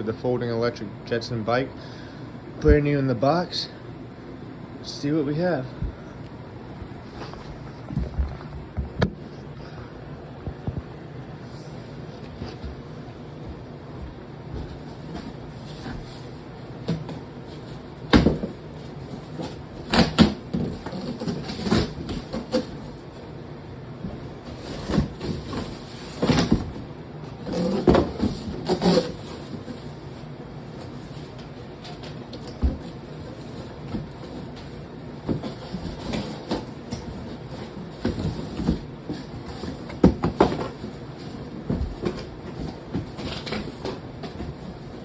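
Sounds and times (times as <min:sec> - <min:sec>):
cardboard rustling: 0:11.4 - 0:23.1, 0:24.0 - 0:45.0
cardboard box thumps and knocks: 0:18.1 - 0:18.6, 0:37.9 - 0:41.0.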